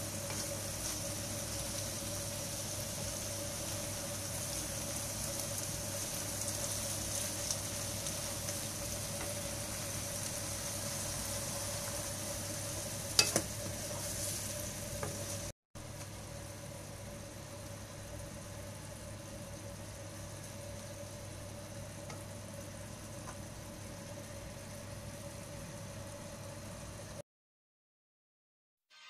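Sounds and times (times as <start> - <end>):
wooden spatula stirring: 0.0 - 1.3
meat and onion sizzling in a pan: 0.0 - 27.1
spatula knocking on pan: 13.2 - 13.8.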